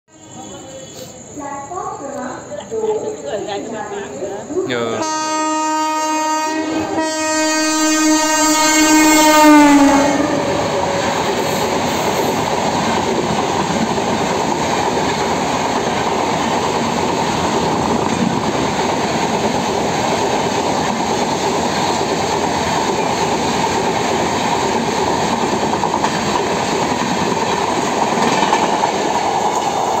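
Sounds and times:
train coaches rumbling past: 0:00.1 - 0:30.0
locomotive horn blasts: 0:05.0 - 0:10.5.

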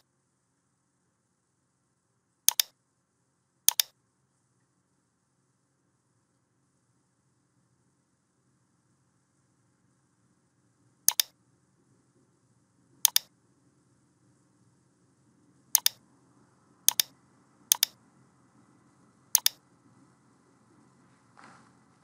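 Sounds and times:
faint low hum: 0:00.0 - 0:22.0
computer mouse button clicking: 0:02.5 - 0:02.7, 0:03.7 - 0:03.9, 0:11.1 - 0:11.3, 0:13.1 - 0:13.3, 0:15.8 - 0:16.0, 0:16.9 - 0:17.1, 0:17.7 - 0:18.0, 0:19.4 - 0:19.6.

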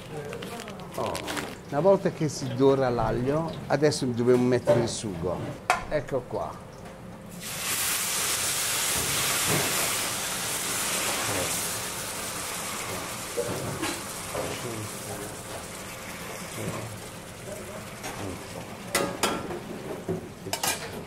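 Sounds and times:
sauce sizzling in hot oil: 0:07.3 - 0:19.8.

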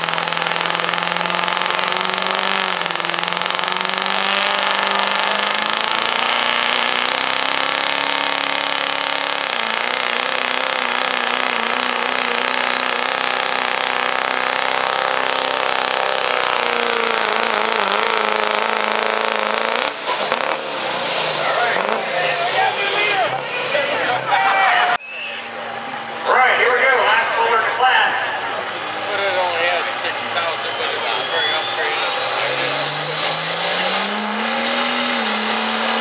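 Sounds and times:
diesel truck engine at full throttle: 0:00.0 - 0:36.0
high whistle rising in pitch: 0:25.0 - 0:25.6, 0:29.8 - 0:36.0.

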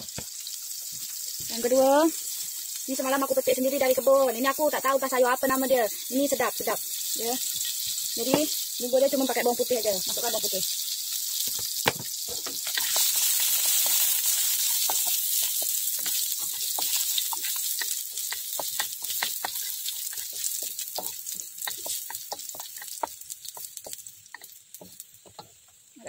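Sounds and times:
garlic sizzling in oil: 0:00.0 - 0:26.0
spatula scraping wok: 0:11.4 - 0:25.6.

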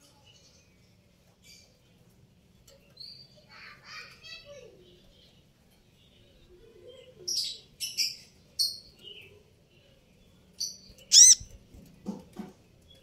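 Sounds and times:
bird chipping and calling: 0:10.7 - 0:11.6.

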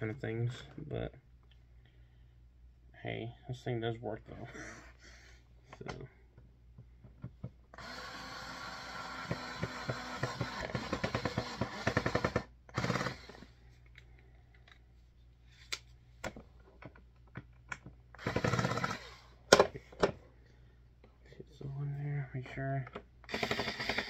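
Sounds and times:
electric screwdriver whirring: 0:07.8 - 0:13.5, 0:18.2 - 0:19.2, 0:23.3 - 0:24.0.

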